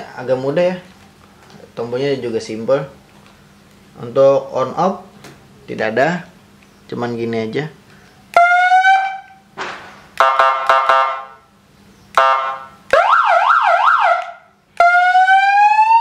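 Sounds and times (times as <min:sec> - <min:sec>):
electronic siren wailing and yelping: 0:08.4 - 0:09.4, 0:12.2 - 0:16.0.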